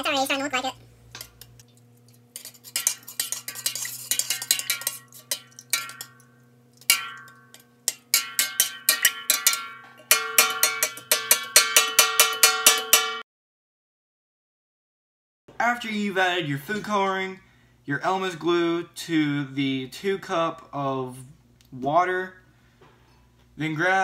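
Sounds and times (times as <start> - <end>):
metal spoon clinking in pot: 1.2 - 13.2.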